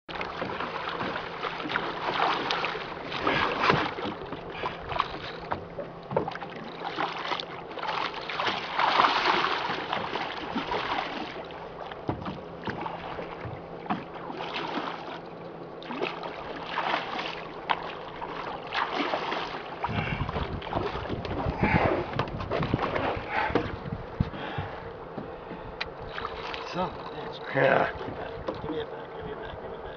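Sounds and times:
water splashing against boat: 0.1 - 29.9
wind buffeting microphone: 19.8 - 24.8.

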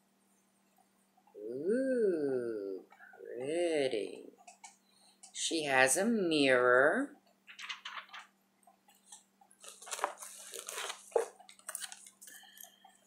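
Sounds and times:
cosmetic packaging rustling and clacking: 7.5 - 8.3, 9.0 - 12.4.

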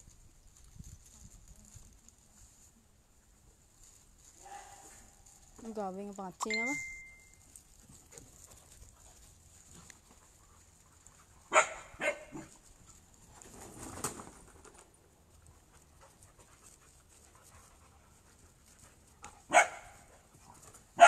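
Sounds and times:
rough noise of dogs playing: 0.0 - 5.6, 7.1 - 21.0
dog barking: 4.4 - 5.0, 11.5 - 12.5, 19.5 - 20.0.

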